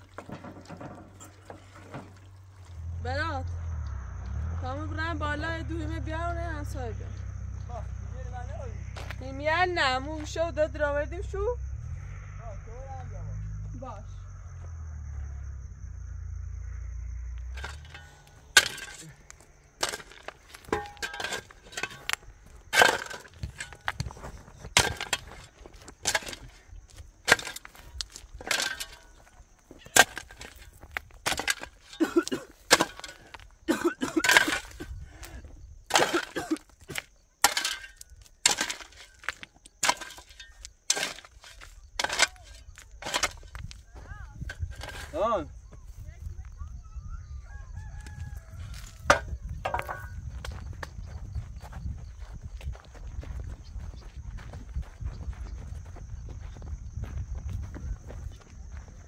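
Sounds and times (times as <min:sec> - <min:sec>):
low steady rumble: 0:01.1 - 0:20.1
digging tool striking stony ground: 0:17.5 - 0:35.0, 0:35.9 - 0:45.5, 0:49.0 - 0:50.2.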